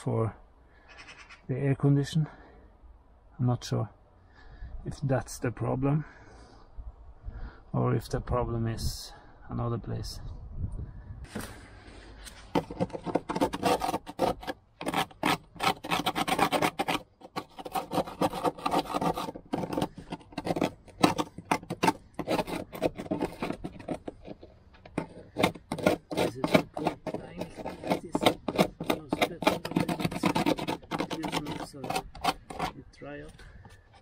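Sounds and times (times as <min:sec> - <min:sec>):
metal tool scraping sheet steel: 0:12.2 - 0:34.0.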